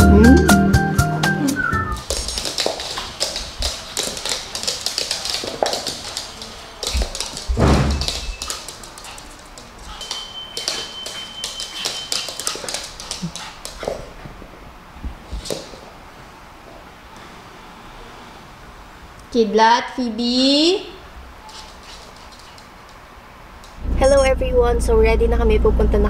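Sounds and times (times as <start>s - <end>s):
dogs vocalizing: 1.8s - 14.4s, 21.4s - 23.0s
dog claws scrabbling on wood: 2.0s - 14.4s, 21.5s - 23.0s.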